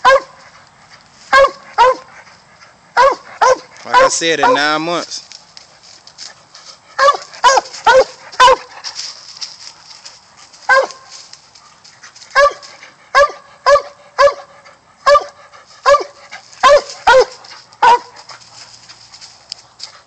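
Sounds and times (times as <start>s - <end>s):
dog barking: 0.0s - 0.4s, 1.3s - 2.1s, 3.0s - 4.8s, 7.0s - 8.7s, 10.7s - 11.1s, 12.3s - 18.2s.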